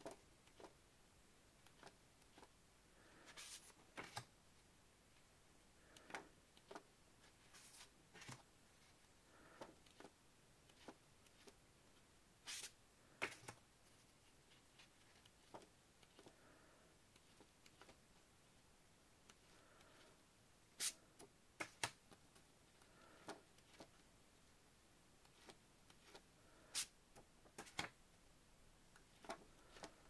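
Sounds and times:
paper pages turning: 0:03.3 - 0:04.3, 0:07.4 - 0:08.4.

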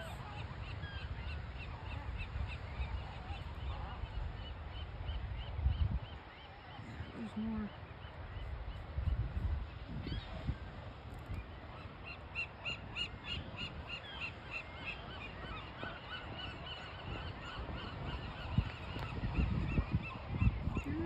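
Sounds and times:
low rumble of surf: 0:00.0 - 0:21.0
gulls calling: 0:09.7 - 0:21.0.

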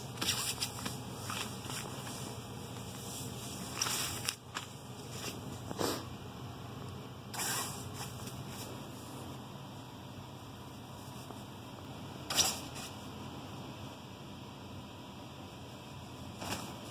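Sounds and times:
kitten rustling on fabric: 0:00.0 - 0:05.7
faint low hum: 0:00.0 - 0:16.9.

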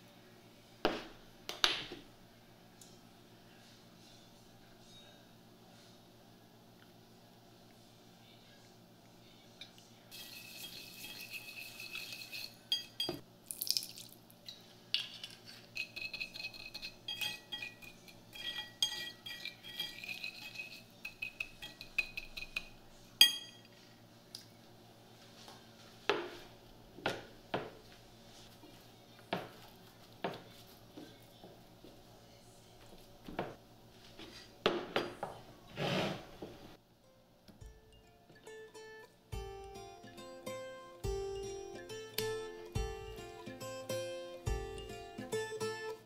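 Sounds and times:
fork whisking in ceramic bowl: 0:10.1 - 0:13.1, 0:15.2 - 0:22.8.

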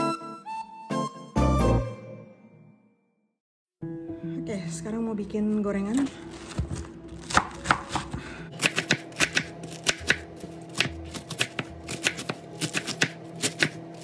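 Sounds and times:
knife chopping on wooden board: 0:06.5 - 0:14.0.

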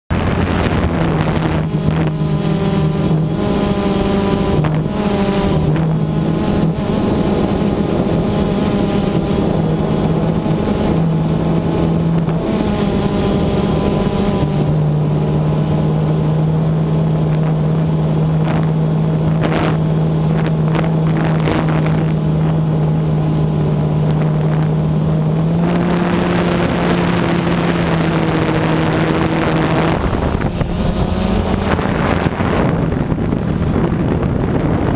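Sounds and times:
drone motors humming: 0:00.1 - 0:34.9
air rushing over microphone: 0:24.0 - 0:34.9.

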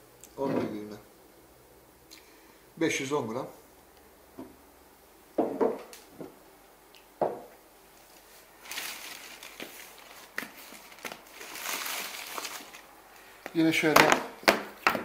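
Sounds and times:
glass jars knocking on wood: 0:05.4 - 0:05.9
rustling: 0:07.9 - 0:13.6.

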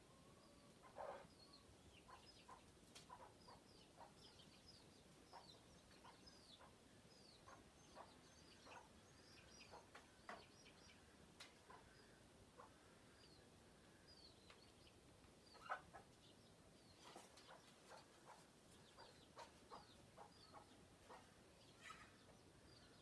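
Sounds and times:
chickens clucking: 0:00.4 - 0:23.0
chicks peeping: 0:00.4 - 0:23.0.

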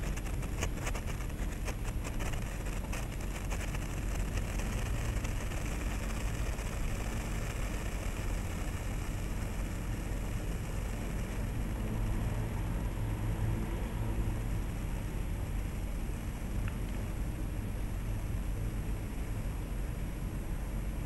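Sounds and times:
sparkler crackling: 0:00.0 - 0:13.1
steady low rumble: 0:00.0 - 0:21.0.

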